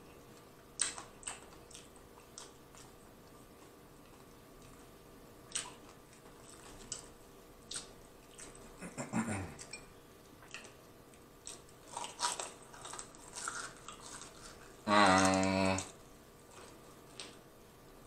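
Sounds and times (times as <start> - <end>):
wet mouth clicks and chewing: 0.8 - 3.0, 5.5 - 7.1, 7.7 - 8.7.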